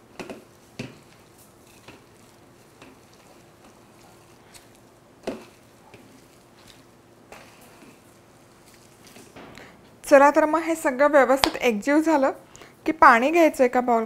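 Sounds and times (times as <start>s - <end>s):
hands squishing potato: 0.1s - 9.2s.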